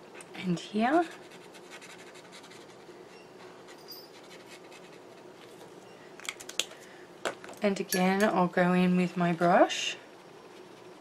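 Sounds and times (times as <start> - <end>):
marker scratching on paper: 0.9 - 2.8, 3.4 - 5.3.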